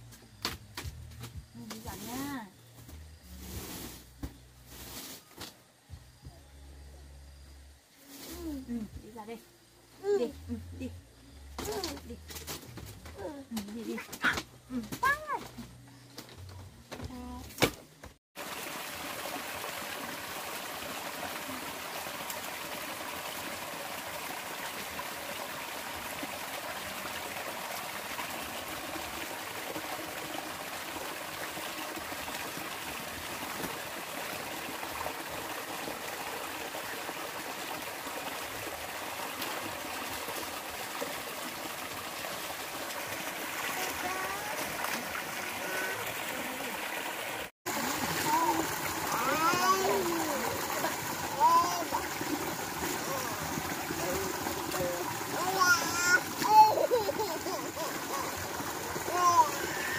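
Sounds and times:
trickling water: 18.4 - 59.9.

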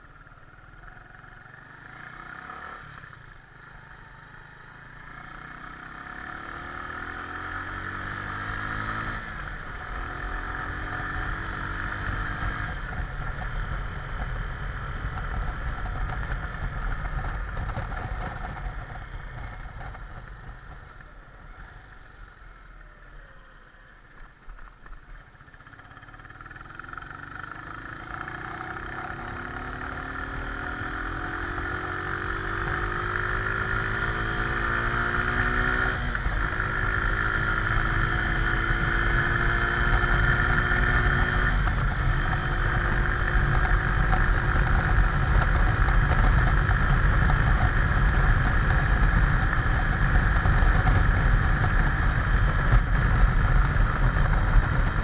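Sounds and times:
motorcycle engine accelerating: 0.0 - 55.0
wind noise: 38.6 - 55.0.

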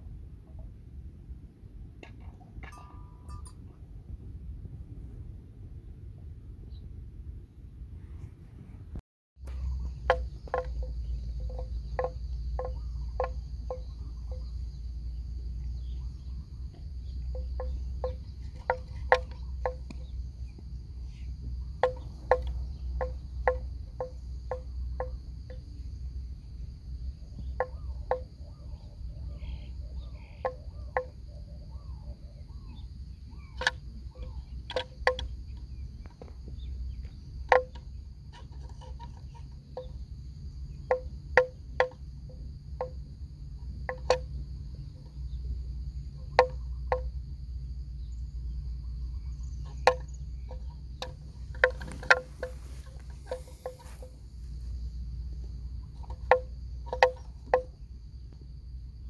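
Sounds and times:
low wind rumble: 0.0 - 59.0
sharp ringing knocks: 2.0 - 3.8, 9.4 - 14.8, 15.8 - 20.6, 21.4 - 25.8, 27.3 - 28.6, 30.0 - 31.3, 32.7 - 40.1, 40.7 - 45.4, 46.0 - 47.2, 49.2 - 57.8
high insect drone: 9.4 - 59.0.

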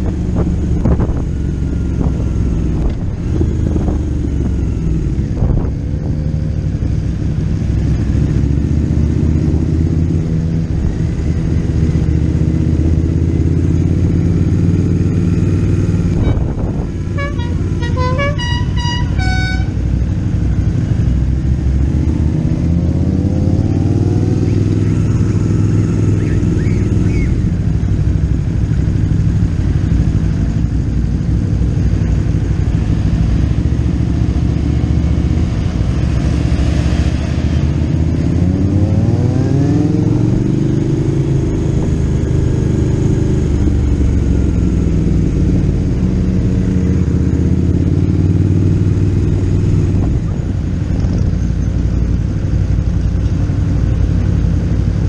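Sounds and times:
motorcycle engine running: 0.0 - 36.7, 40.0 - 55.0
horn toots: 16.1 - 20.0.

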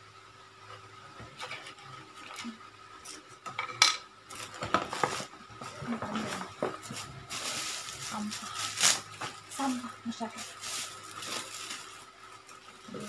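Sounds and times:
small hard objects clinking: 10.4 - 13.0.

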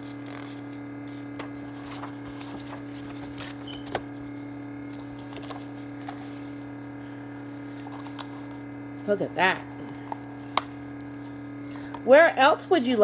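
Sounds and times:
book pages turning: 0.0 - 9.1, 9.8 - 11.9
steady electrical hum: 0.0 - 13.0
paper rustles and light taps: 0.2 - 4.1, 4.9 - 6.5.

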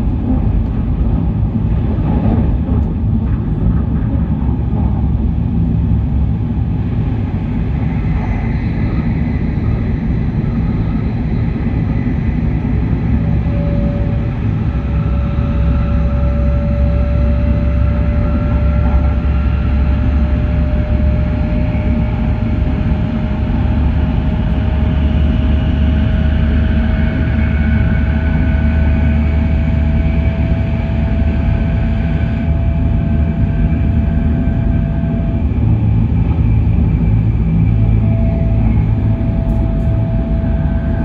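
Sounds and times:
train wheels rumbling on rail: 0.0 - 41.0
faint rising whine: 7.6 - 41.0.

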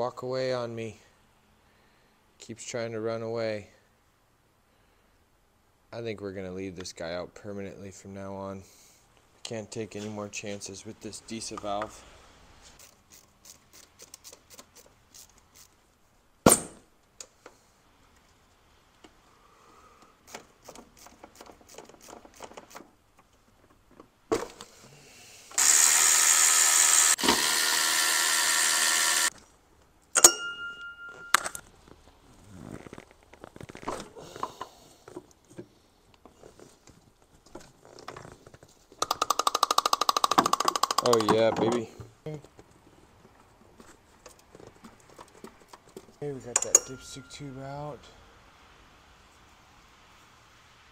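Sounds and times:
cordless power tool motor: 25.6 - 29.3
hand tools clicking and clattering: 39.0 - 41.9, 44.3 - 47.4.

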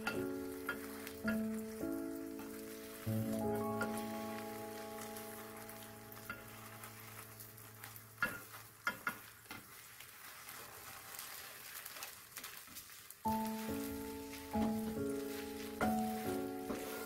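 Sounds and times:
utensils clicking against pan: 0.0 - 3.1, 5.7 - 9.7
egg sizzling in pan: 0.0 - 17.0.

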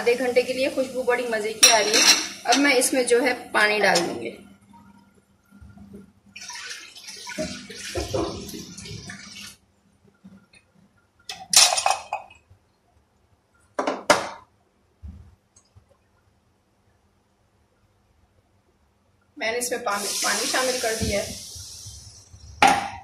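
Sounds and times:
pots and utensils clattering: 1.6 - 2.7, 11.3 - 12.4
water pouring: 6.3 - 9.6.

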